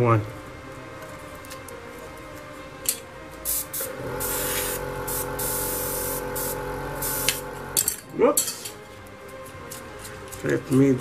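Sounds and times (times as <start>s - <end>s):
airbrush spraying hiss: 3.5s - 7.8s
motor hum: 3.8s - 7.9s.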